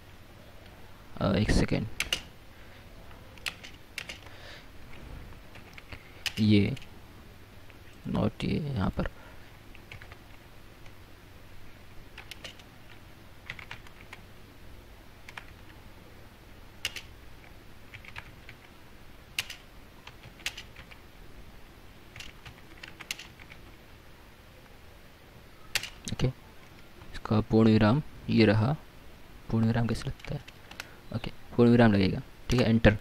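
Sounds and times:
computer keyboard typing: 0:02.0 - 0:02.3, 0:03.4 - 0:04.3, 0:05.5 - 0:06.9, 0:09.7 - 0:11.0, 0:12.2 - 0:14.2, 0:15.2 - 0:15.8, 0:16.8 - 0:18.7, 0:19.3 - 0:21.0, 0:22.1 - 0:23.8, 0:25.7 - 0:27.1, 0:30.0 - 0:30.9.

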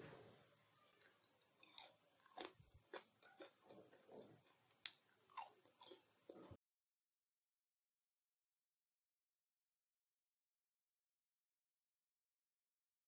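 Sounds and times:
crunchy food being chewed: 0:00.5 - 0:06.6.

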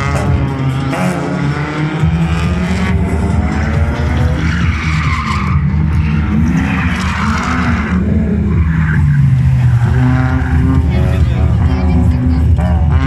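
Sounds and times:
car engines revving: 0:00.0 - 0:13.0
tyre squeal and skidding: 0:03.4 - 0:10.8.

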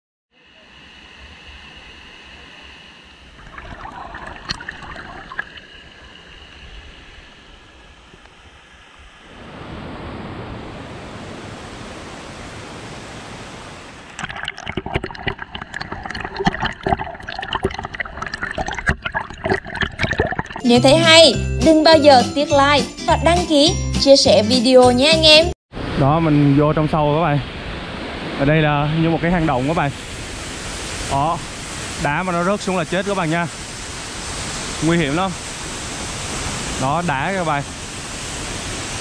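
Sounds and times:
water splashes and clicks: 0:03.4 - 0:05.6, 0:14.0 - 0:20.6
water rushing over rocks: 0:03.4 - 0:07.7, 0:09.2 - 0:20.6, 0:26.8 - 0:39.0.

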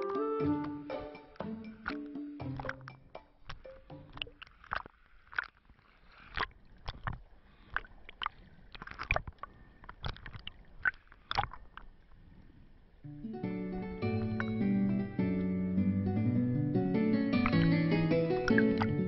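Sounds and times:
sea water sloshing and splashing: 0:01.8 - 0:13.0, 0:17.4 - 0:19.0.

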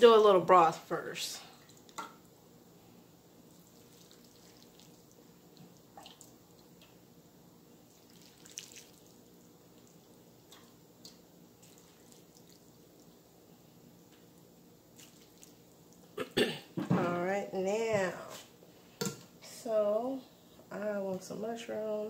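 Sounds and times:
low room hum: 0:00.0 - 0:22.0
broth dripping and splashing: 0:01.5 - 0:02.0, 0:03.5 - 0:06.9, 0:07.9 - 0:13.2, 0:15.0 - 0:16.2.

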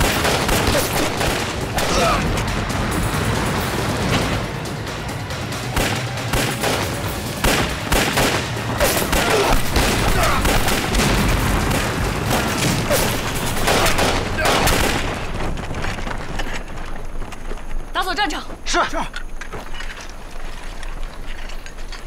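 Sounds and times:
gunfire volley: 0:00.0 - 0:02.2, 0:05.8 - 0:15.3
explosions: 0:05.7 - 0:16.2.

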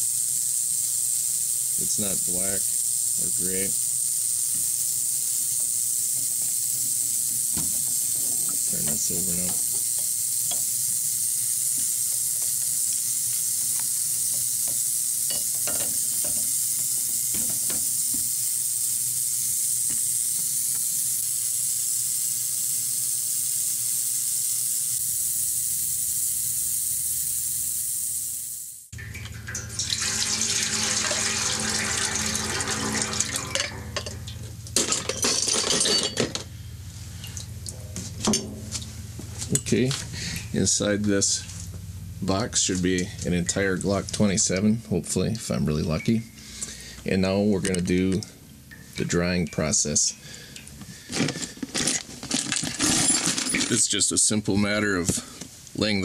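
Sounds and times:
ultrasonic cleaner hissing: 0:00.0 - 0:28.9, 0:29.6 - 0:34.7, 0:38.0 - 0:44.9.

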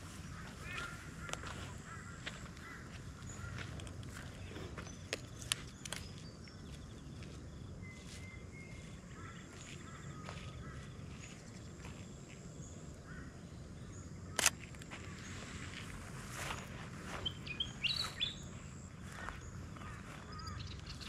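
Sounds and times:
small birds chirping: 0:00.0 - 0:21.0
sharp loud click: 0:14.4 - 0:14.6.

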